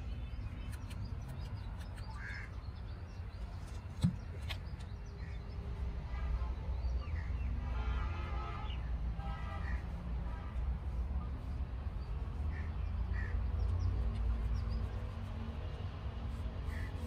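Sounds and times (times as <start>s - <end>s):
crows cawing: 12.5s - 13.4s.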